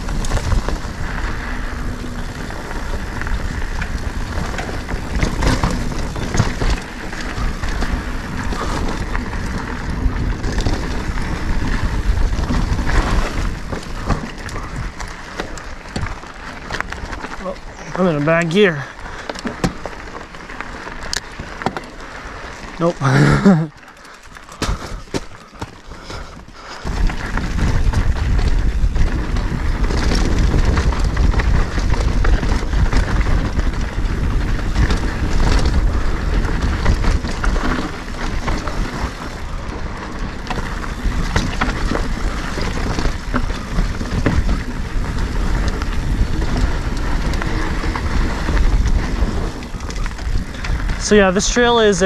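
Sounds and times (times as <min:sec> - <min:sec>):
wind rumbling on microphone: 0:00.0 - 0:23.6, 0:24.5 - 0:52.0
bike rattling over rocks: 0:00.0 - 0:52.0.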